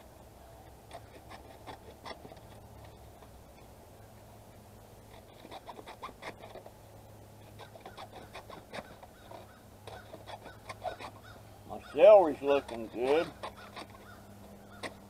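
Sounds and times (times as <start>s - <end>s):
shears snipping cardboard: 12.3s - 15.0s.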